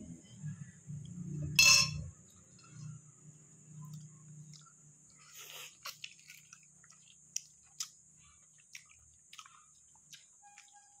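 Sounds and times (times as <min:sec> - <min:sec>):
chewing with clicks and smacks: 0:03.8 - 0:11.0.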